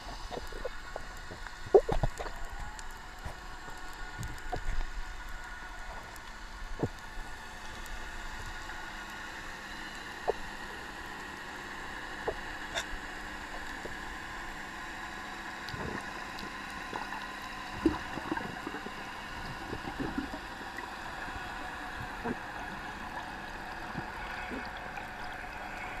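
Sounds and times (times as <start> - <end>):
bubbles gurgling and knocking: 0.0 - 2.4, 17.8 - 20.5
faint hum: 0.0 - 26.0.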